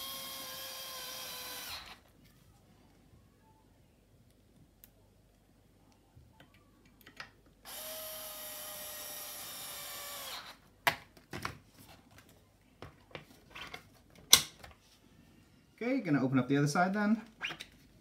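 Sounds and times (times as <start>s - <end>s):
electric screwdriver running: 0.0s - 2.0s, 7.7s - 10.6s.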